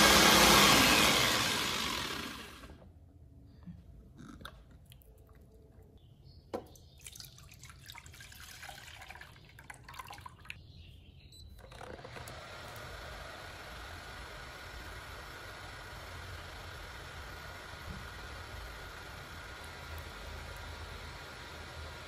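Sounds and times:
electric chopper motor: 0:00.0 - 0:02.8, 0:11.6 - 0:22.0
cooktop whir: 0:00.0 - 0:02.9, 0:11.6 - 0:22.0.

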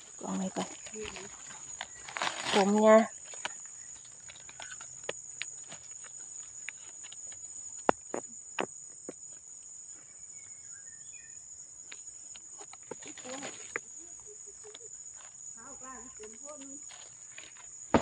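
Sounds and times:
dry leaves crackling: 0:00.0 - 0:07.5, 0:12.8 - 0:18.0
high insect drone: 0:00.0 - 0:18.0.

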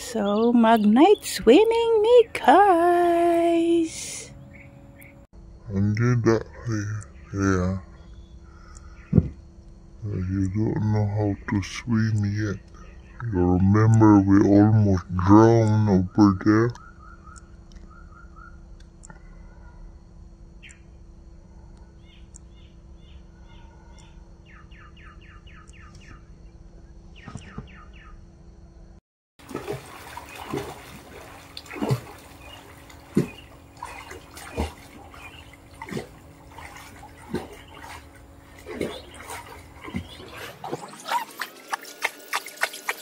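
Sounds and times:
birds chirping: 0:00.0 - 0:05.3, 0:06.0 - 0:19.4, 0:20.6 - 0:21.0, 0:21.6 - 0:28.3, 0:29.4 - 0:43.0
low steady rumble: 0:00.0 - 0:27.2
water splashing in pool: 0:29.4 - 0:43.0.

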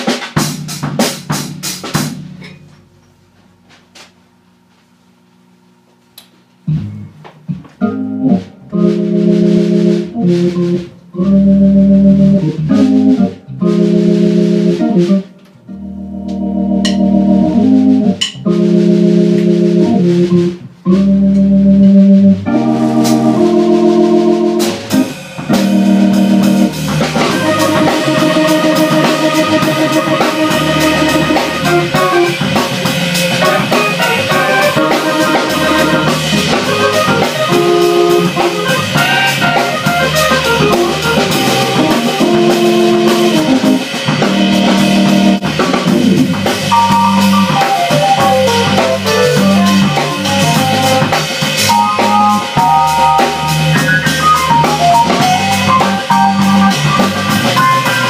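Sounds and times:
organ chords on keyboard: 0:00.0 - 0:03.3, 0:06.6 - 0:58.0
drum kit beats and cymbals: 0:00.0 - 0:04.2, 0:06.6 - 0:58.0.

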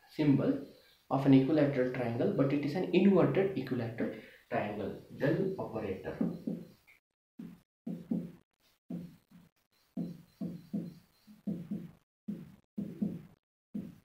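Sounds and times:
marker pen writing on whiteboard: 0:06.1 - 0:14.0.

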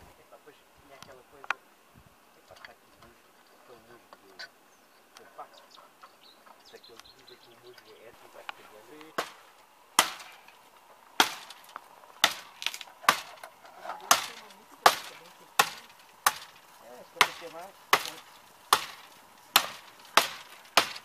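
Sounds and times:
wood being chopped: 0:08.5 - 0:10.6, 0:11.2 - 0:21.0.

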